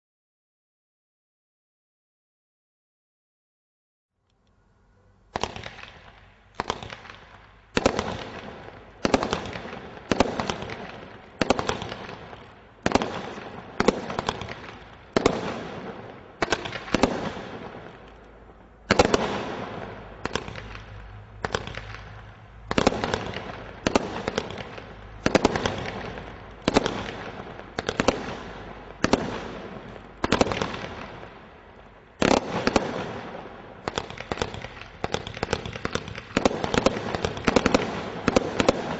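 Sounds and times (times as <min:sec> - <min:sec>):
roman candle firing shots: 0:05.4 - 0:18.2, 0:18.8 - 0:31.5, 0:32.2 - 0:38.9.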